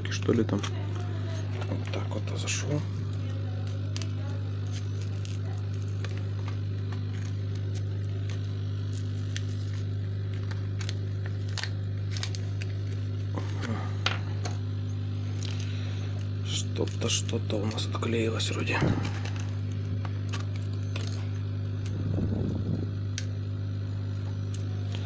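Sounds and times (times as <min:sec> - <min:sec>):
hot-air blower humming: 0:00.0 - 0:25.0.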